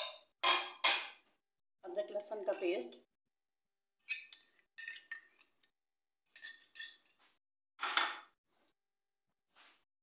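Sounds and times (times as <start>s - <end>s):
spoon clinking against ceramic bowl: 2.1s - 2.9s, 4.0s - 5.7s, 6.3s - 7.2s.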